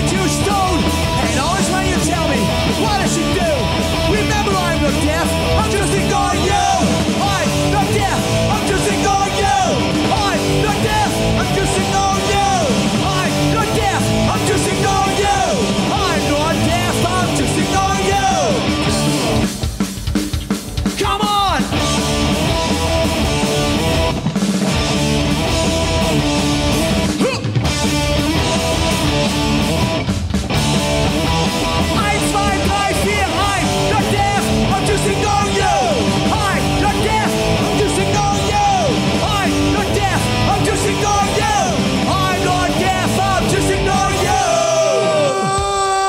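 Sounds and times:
shouted vocals: 0:00.0 - 0:19.1, 0:27.1 - 0:27.6, 0:31.8 - 0:46.0
punk rock band playing live: 0:00.0 - 0:46.0.

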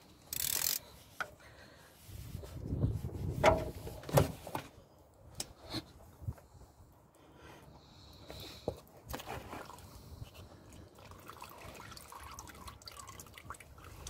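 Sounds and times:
wrench strap rubbing and creaking: 0:00.1 - 0:01.3.

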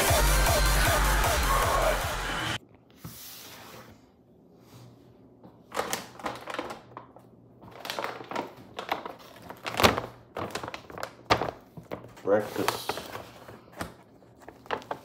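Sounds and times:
plastic bag crinkling: 0:05.7 - 0:15.0.

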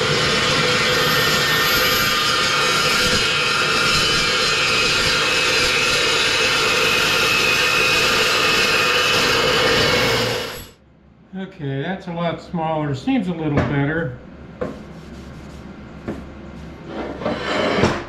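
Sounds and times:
chop saw cutting metal tubing: 0:00.0 - 0:10.7.

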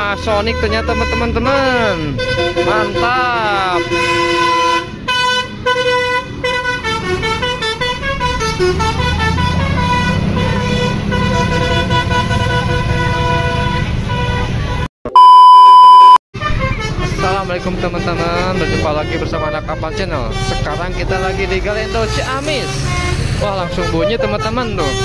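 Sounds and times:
bus engine rumbling: 0:00.0 - 0:14.9, 0:16.4 - 0:25.0
multi-note bus horn melody: 0:00.0 - 0:25.0
loud steady beep: 0:15.1 - 0:16.2.

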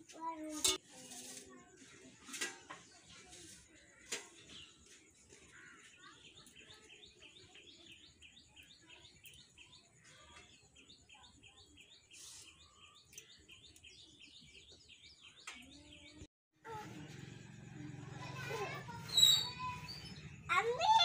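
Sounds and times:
faint bird chirps: 0:03.2 - 0:16.2, 0:19.0 - 0:20.6.

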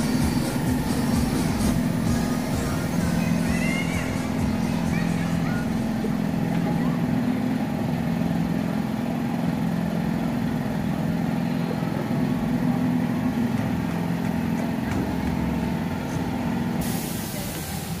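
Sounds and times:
ride machinery humming: 0:00.0 - 0:18.0
hiss: 0:16.8 - 0:18.0.

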